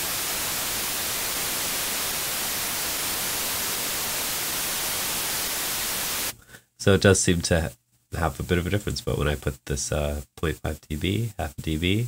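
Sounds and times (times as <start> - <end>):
steady white noise signal: 0.0 - 12.0.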